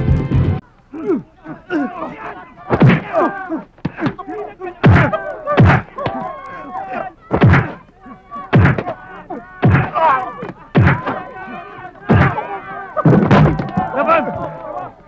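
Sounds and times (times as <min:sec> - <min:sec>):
people shouting: 0:00.9 - 0:15.0
heavy punches landing: 0:02.7 - 0:03.2, 0:04.8 - 0:06.2, 0:07.3 - 0:07.8, 0:08.5 - 0:09.0, 0:09.6 - 0:10.0, 0:10.8 - 0:11.2, 0:12.1 - 0:12.4.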